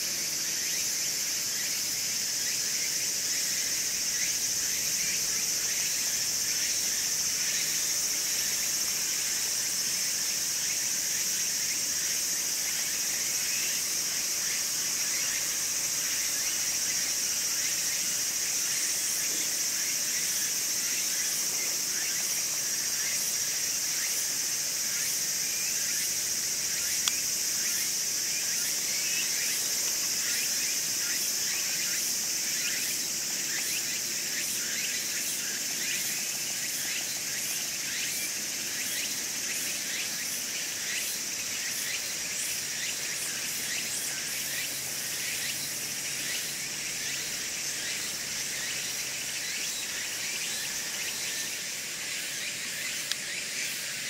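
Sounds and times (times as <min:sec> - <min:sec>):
high-pitched insect chorus: 0:00.0 - 0:54.0
single click: 0:27.0 - 0:27.2.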